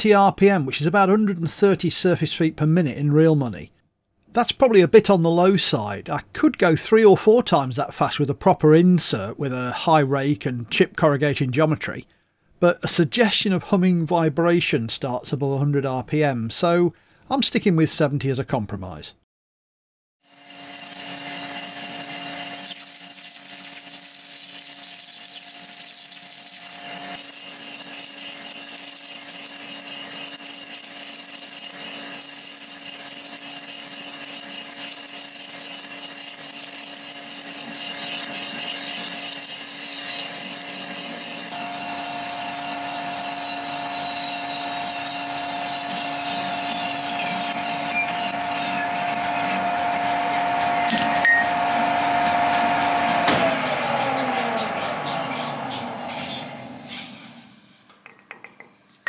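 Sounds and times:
high cutting noise: 0:20.2 - 0:56.5
lathe machine hum: 0:20.4 - 0:24.2, 0:25.9 - 0:57.5.

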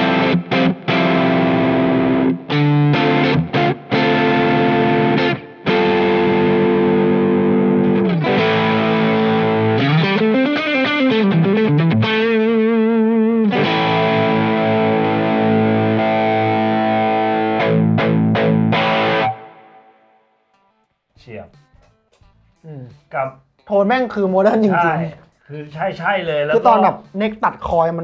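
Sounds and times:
distorted electric guitar: 0:00.0 - 0:20.8.

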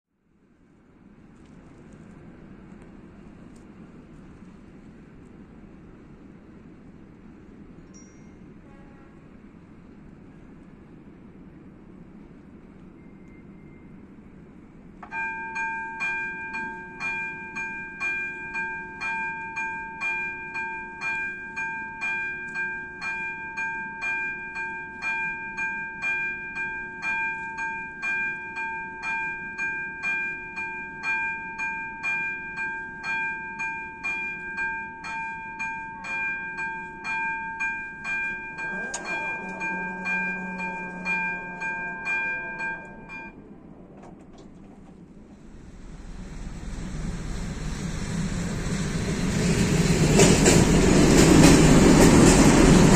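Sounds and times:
level crossing bell dinging: 0:15.1 - 0:43.4.

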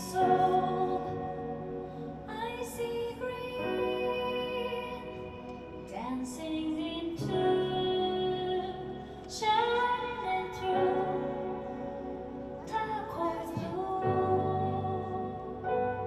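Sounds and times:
woman singing gentle song: 0:00.0 - 0:16.0.

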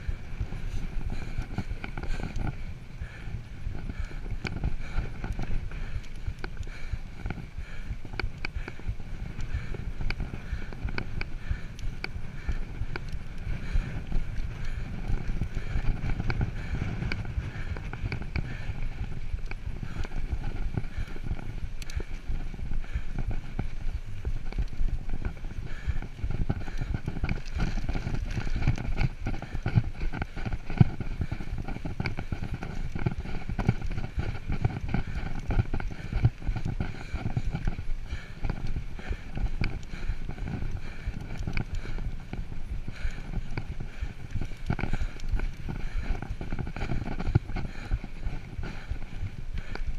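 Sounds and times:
bike rattling and knocking: 0:00.0 - 0:49.9
bike tyres on dirt: 0:00.0 - 0:49.9.

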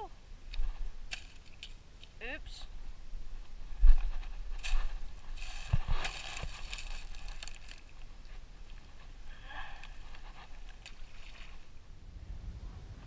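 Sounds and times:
rustling in dry leaves: 0:02.6 - 0:11.9.

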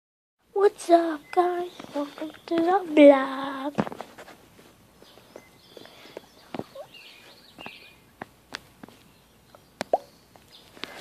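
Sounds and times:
distant bird chirps: 0:00.8 - 0:03.1, 0:05.0 - 0:11.0.

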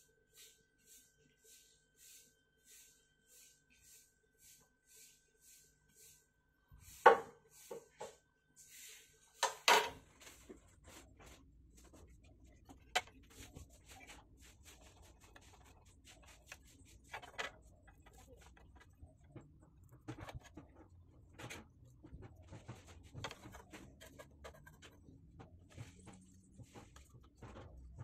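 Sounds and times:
light taps and scrapes: 0:09.4 - 0:28.0.

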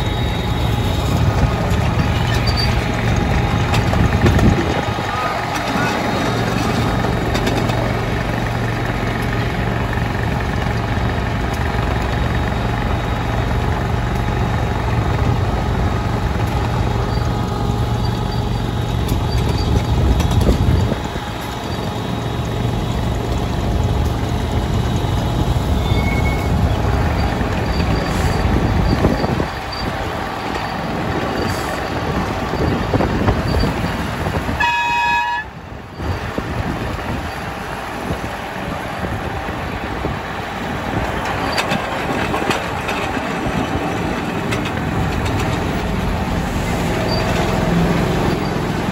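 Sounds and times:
model locomotive engine running: 0:00.0 - 0:48.9
short horn toot: 0:34.6 - 0:35.5.

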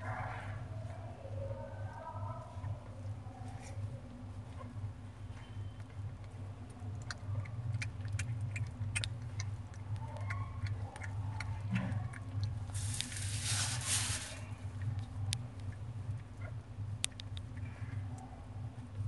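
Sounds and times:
steady low hum: 0:00.0 - 0:19.0
cat licking wet clicks: 0:05.8 - 0:13.1
loud rustle: 0:12.8 - 0:14.4.

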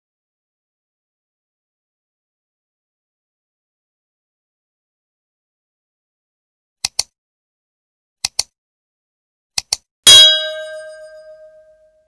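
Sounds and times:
mouse clicks: 0:06.8 - 0:07.1, 0:08.2 - 0:08.5, 0:09.6 - 0:09.8
bright bell ding: 0:10.1 - 0:11.8.

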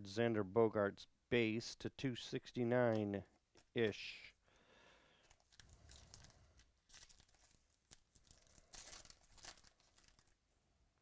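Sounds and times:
wrapper tearing and crinkling: 0:05.3 - 0:10.4.

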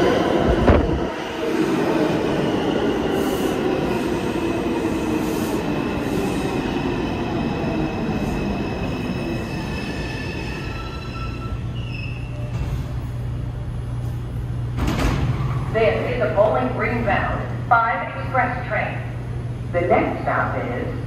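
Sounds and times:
subway train rumble: 0:00.0 - 0:21.0
steel wheels squealing on rails: 0:08.1 - 0:12.9.

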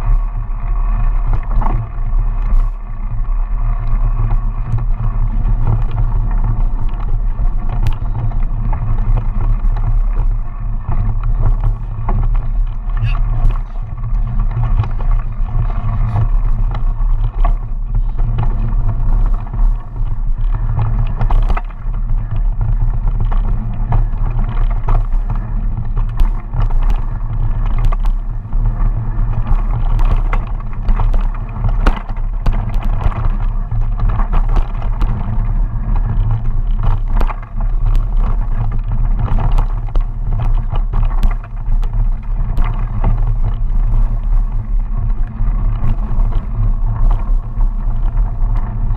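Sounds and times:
bike clicking and rattling: 0:00.0 - 0:48.9
bike tyres rumbling on dirt: 0:00.0 - 0:48.9
wind on microphone: 0:00.0 - 0:48.9.

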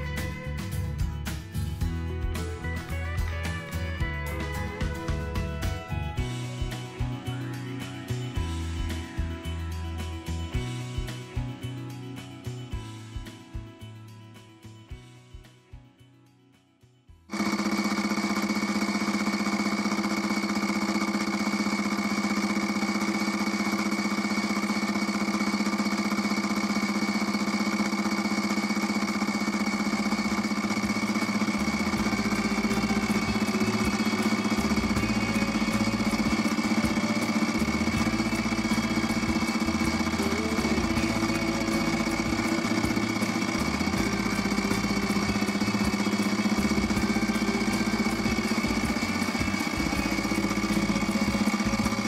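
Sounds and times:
milling machine motor hum: 0:00.0 - 0:11.5, 0:17.3 - 0:52.0
fast fine cutter ticking: 0:17.3 - 0:52.0.

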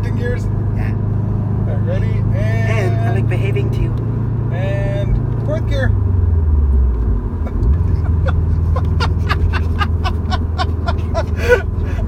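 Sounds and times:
car engine droning in cabin: 0:00.0 - 0:12.0
rhythmic laughter: 0:07.3 - 0:12.0.

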